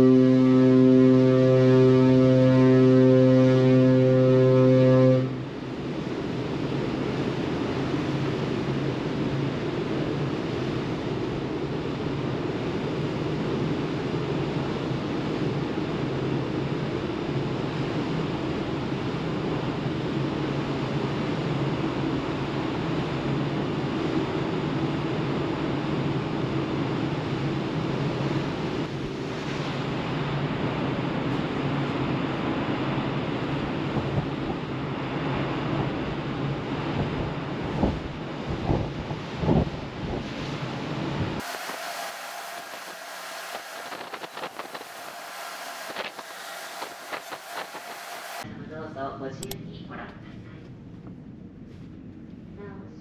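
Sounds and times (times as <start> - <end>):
deep ship's horn blast: 0.0 - 6.2, 41.4 - 48.4
wind and sea rushing: 5.2 - 48.5.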